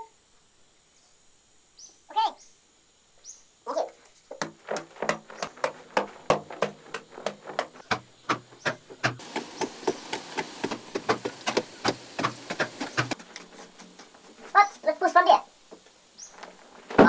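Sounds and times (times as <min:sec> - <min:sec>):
faint steady hiss: 0:00.0 - 0:17.0
crumbling soil: 0:09.2 - 0:14.6.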